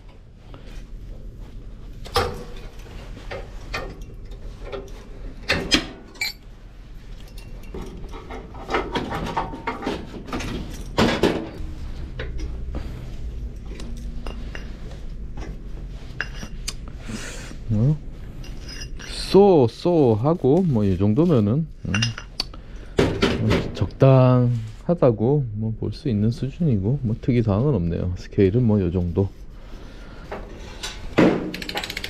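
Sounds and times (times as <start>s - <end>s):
steady low hum: 0.0s - 31.4s
metal parts clinking and knocking: 2.0s - 6.5s, 7.2s - 12.5s, 13.4s - 15.6s, 30.8s - 32.0s.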